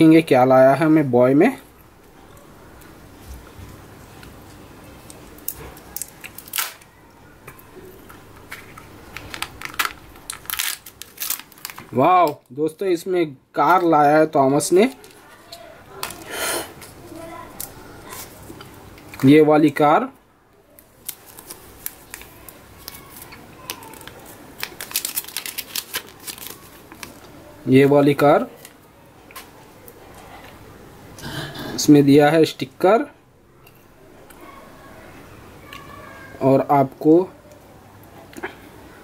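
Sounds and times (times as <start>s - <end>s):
wrapper crinkling: 5.1s - 6.9s, 7.9s - 12.5s, 20.8s - 27.6s
paper leaflet crackling: 8.5s - 12.0s, 21.0s - 27.4s.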